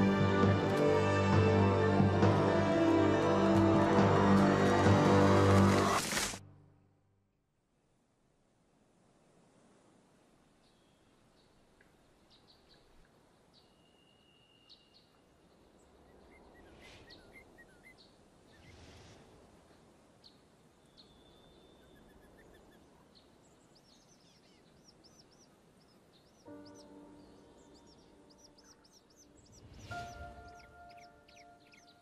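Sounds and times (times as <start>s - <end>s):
bird chirps: 20.2s - 32.0s.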